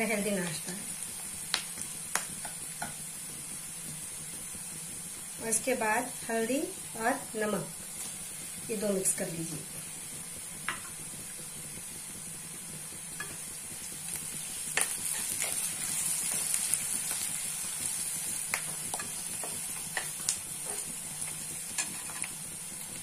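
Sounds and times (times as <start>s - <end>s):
food sizzling in oil: 0.0s - 23.0s
metal spoon scraping a pan: 18.9s - 22.4s.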